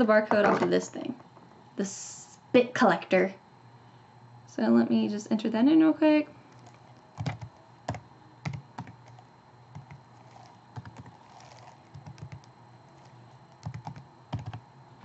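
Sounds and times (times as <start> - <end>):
typing on computer keyboard: 6.6 - 14.6.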